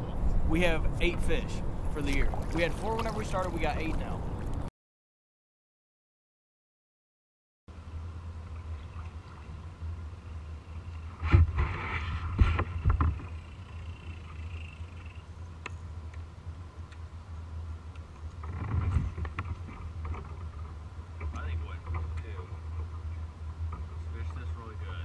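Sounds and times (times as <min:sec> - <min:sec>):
water against kayak hull: 0:01.0 - 0:04.7, 0:07.8 - 0:24.5
wind rumble on microphone: 0:17.7 - 0:25.0.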